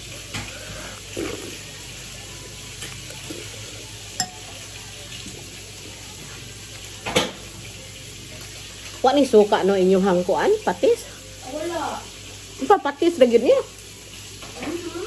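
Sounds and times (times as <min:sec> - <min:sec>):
spoon clinking on dish: 0:04.2 - 0:04.6.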